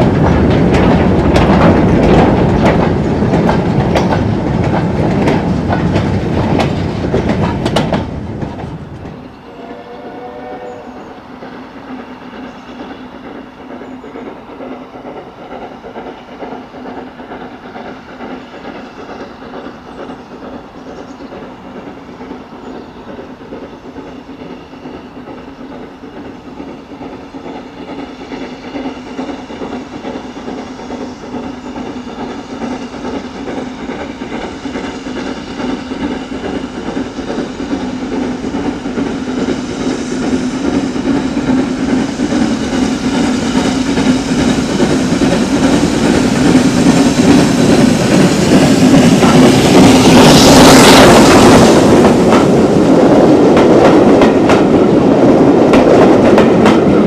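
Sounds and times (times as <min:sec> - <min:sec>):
steam locomotive exhaust beats: 0:00.0 - 0:57.0
steam whistle: 0:09.4 - 0:11.2.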